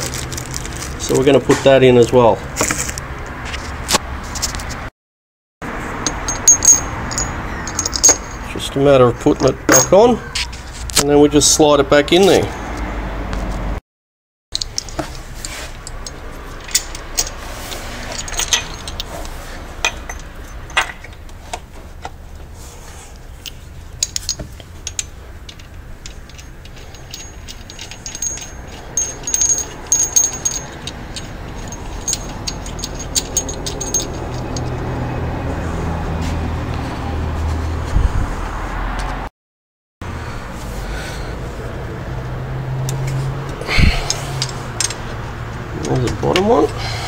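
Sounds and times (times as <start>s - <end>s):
metallic clinks of hand tools: 6.1s - 8.6s, 9.4s - 10.2s, 18.1s - 19.1s, 24.0s - 34.8s.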